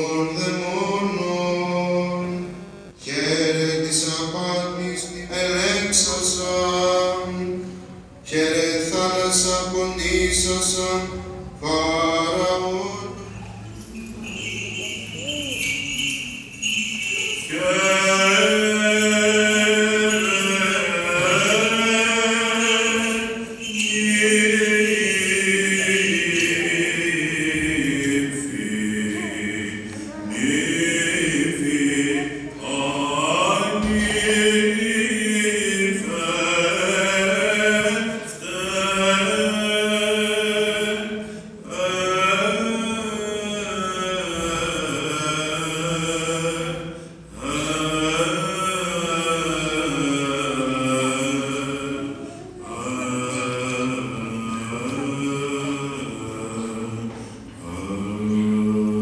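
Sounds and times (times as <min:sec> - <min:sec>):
low held drone note: 0:02.1 - 0:03.2
chanters singing: 0:13.4 - 0:29.7.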